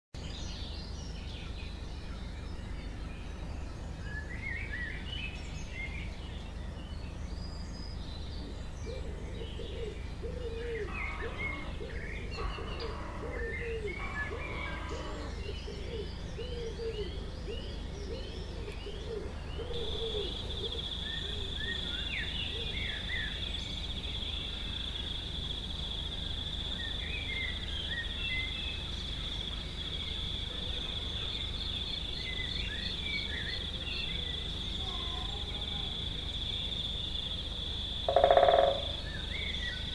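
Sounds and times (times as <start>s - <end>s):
songbirds chirping: 0.2s - 39.9s
lower repeated bird calls: 8.0s - 39.9s.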